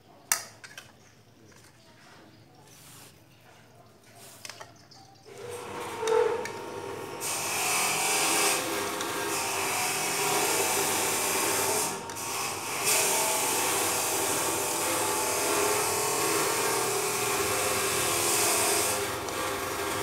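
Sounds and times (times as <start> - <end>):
machine motor whirring: 5.3 - 20.0.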